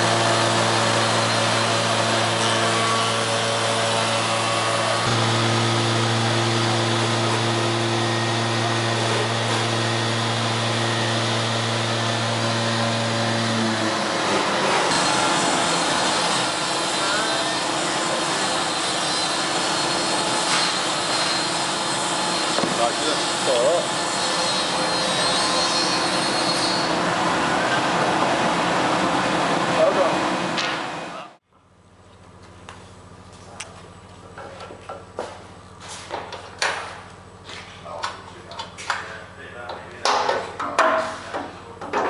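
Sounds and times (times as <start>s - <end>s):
motor hum: 0.0s - 14.9s.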